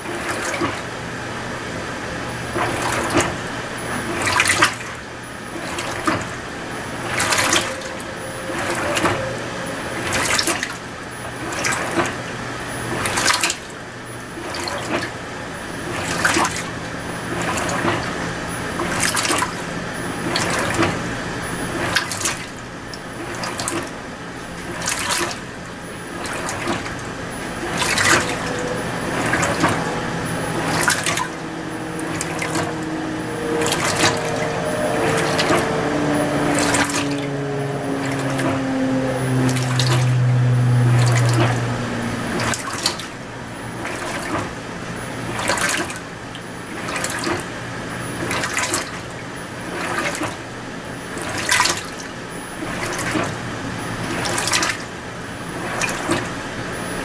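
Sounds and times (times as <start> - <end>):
washing machine water swishing: 0.0 - 12.3, 12.9 - 50.5, 51.1 - 56.4
faint low hum: 25.8 - 44.2.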